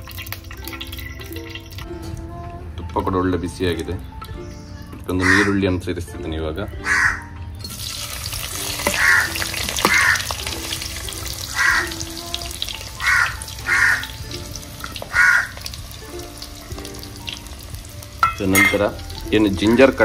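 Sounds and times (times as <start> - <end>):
crow cawing: 5.2 - 5.6, 6.8 - 7.3, 8.9 - 10.3, 11.5 - 12.0, 13.0 - 14.1, 15.1 - 15.6
onions sizzling in oil: 7.6 - 20.0.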